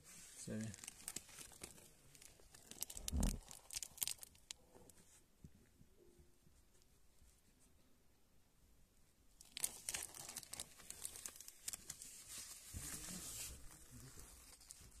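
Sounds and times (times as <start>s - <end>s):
cardboard crinkling: 0.5s - 4.5s, 9.4s - 15.0s.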